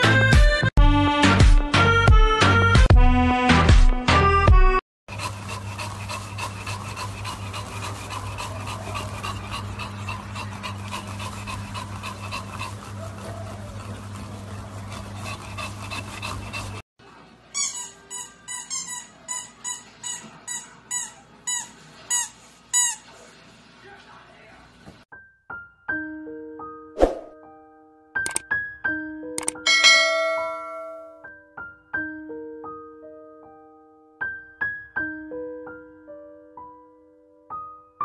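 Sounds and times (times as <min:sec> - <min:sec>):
dogs panting heavily: 0:05.1 - 0:16.8.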